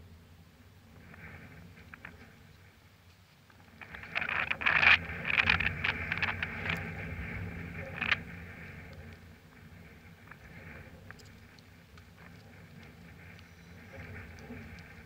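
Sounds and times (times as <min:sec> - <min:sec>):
wind buffeting microphone: 0:03.6 - 0:15.0.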